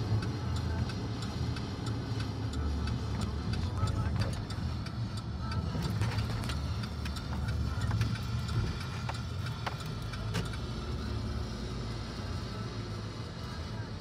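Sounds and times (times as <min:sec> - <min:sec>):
car cabin road rumble: 0:00.0 - 0:14.0.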